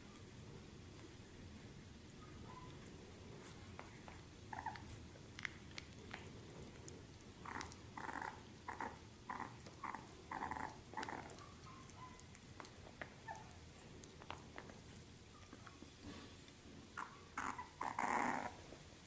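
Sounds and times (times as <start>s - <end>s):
puppy making short vocal noises: 7.4s - 13.6s, 17.0s - 18.6s.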